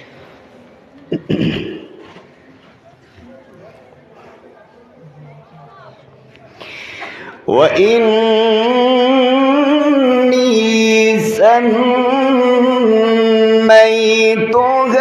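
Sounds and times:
man reciting melodically: 7.4 - 15.0.

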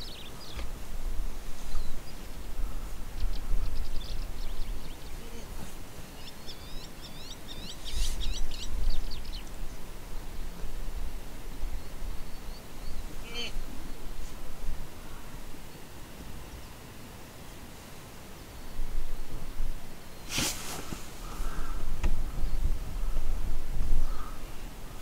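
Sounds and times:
small birds chirping: 0.0 - 0.7, 1.6 - 10.7, 11.6 - 14.4
wind buffeting microphone: 20.8 - 25.0.

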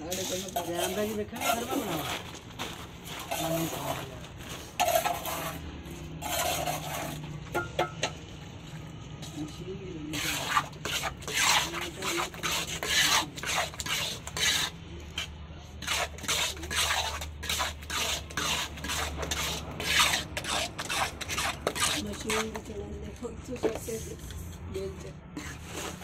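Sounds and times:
trowel scraping wet cement: 0.0 - 2.2, 3.2 - 5.6, 6.2 - 7.2, 10.1 - 22.7.

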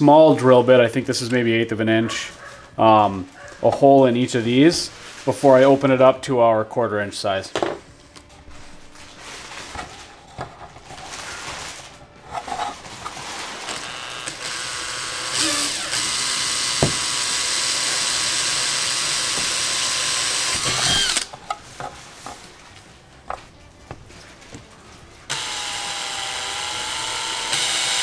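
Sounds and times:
cordless drill drilling plastic: 13.7 - 21.3, 25.3 - 28.0.

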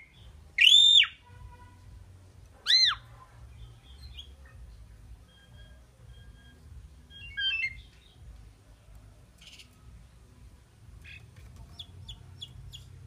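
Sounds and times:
bird chirping: 0.0 - 1.3, 2.6 - 13.0.

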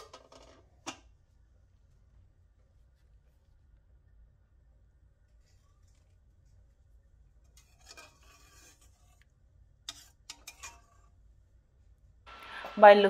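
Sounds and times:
spoon scraping pot: 7.4 - 11.2.

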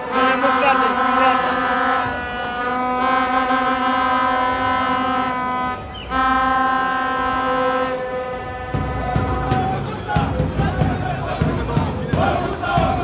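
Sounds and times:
plastic horn blasts: 0.0 - 10.0
crowd noise: 0.0 - 13.0.

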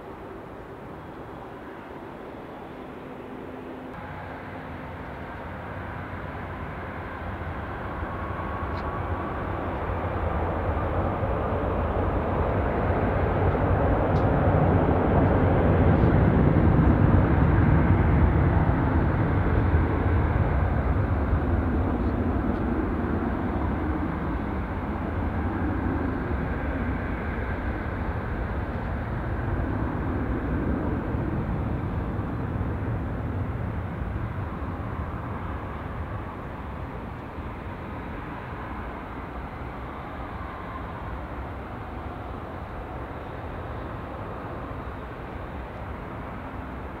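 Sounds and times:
jet engines at takeoff thrust: 0.0 - 47.0.

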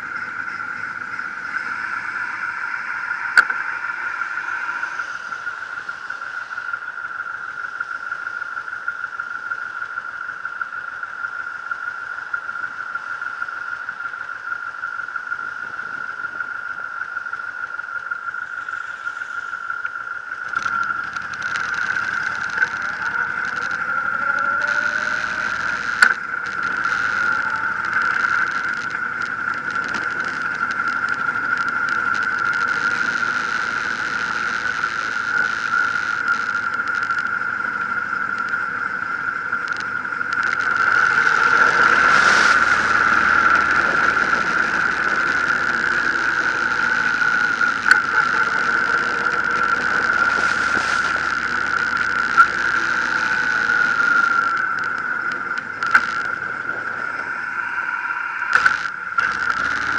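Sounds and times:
high-pitched whine: 0.0 - 59.9
motorcycle engine: 20.5 - 57.2.

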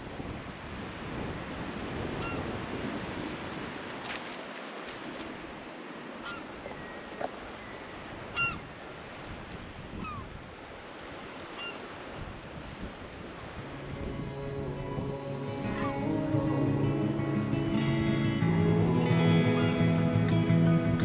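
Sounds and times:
sea washing against rocks: 0.0 - 10.0
bird calling: 6.2 - 8.7, 10.0 - 10.3, 11.5 - 11.9.

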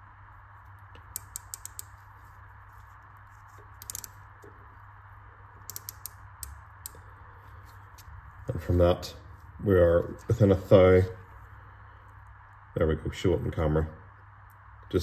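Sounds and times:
faint steady hum: 0.0 - 15.0
micrometer ratchet clicking: 1.0 - 2.1, 3.5 - 4.5, 5.6 - 7.0.

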